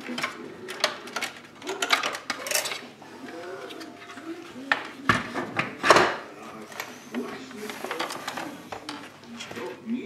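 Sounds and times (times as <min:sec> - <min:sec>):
plastic parts clicking and knocking: 0:00.0 - 0:02.9.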